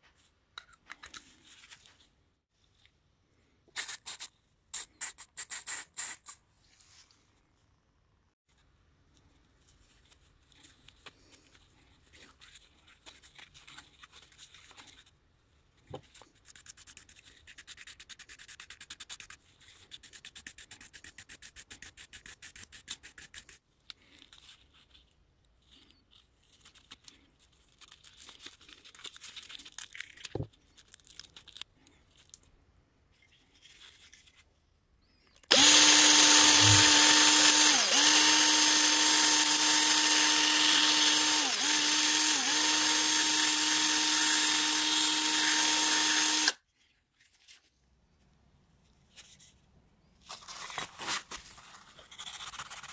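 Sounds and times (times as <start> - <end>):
small scrapes and clicks: 15.8 - 34.6
small electric power tool running: 35.5 - 46.6.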